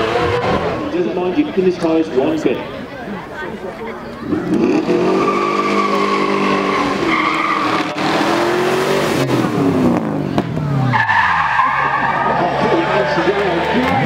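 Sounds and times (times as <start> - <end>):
tyres squealing: 4.2 - 8.8, 10.8 - 14.0
sports car engine revving: 4.2 - 14.0.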